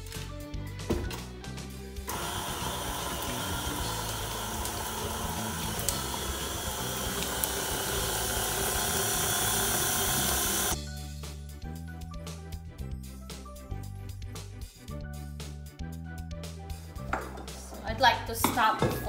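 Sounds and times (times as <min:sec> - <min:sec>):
stand mixer motor whir: 0:02.1 - 0:10.8.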